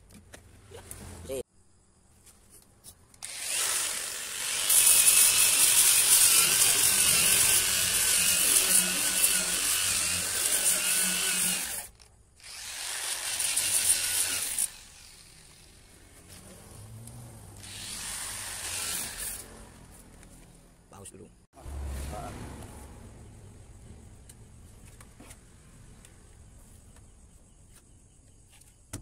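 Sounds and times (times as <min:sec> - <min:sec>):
angle grinder sanding: 0:03.2 - 0:20.0.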